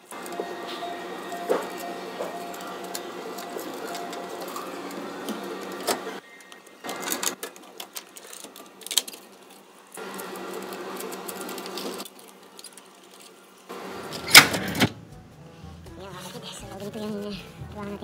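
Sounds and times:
receipt printer buzzing: 0:00.0 - 0:07.7, 0:10.0 - 0:12.4, 0:13.7 - 0:15.0.

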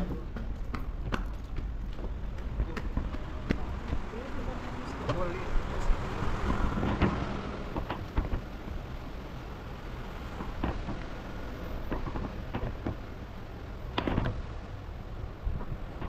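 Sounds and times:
footsteps on wooden floor: 0:00.0 - 0:05.2.

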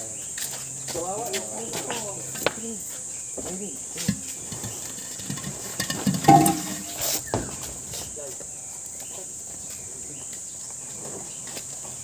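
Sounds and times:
pots knocking and thumping: 0:04.0 - 0:07.2.

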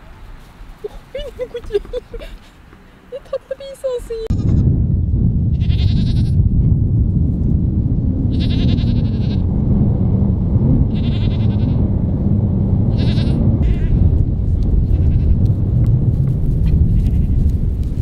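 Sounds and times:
steady low rumble: 0:04.2 - 0:18.0
goats bleating: 0:13.0 - 0:14.0.

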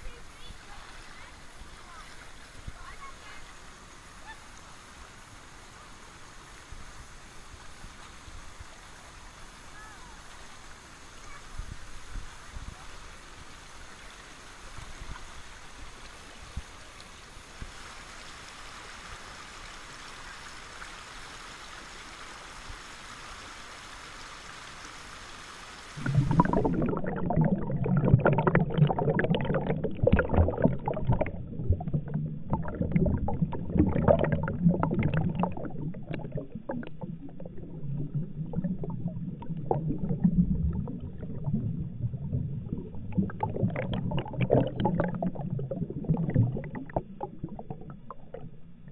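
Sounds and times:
water rushing over rocks: 0:25.8 - 0:48.9
underwater churning gurgle: 0:26.0 - 0:48.9
underwater knocks and pops: 0:26.0 - 0:48.9.

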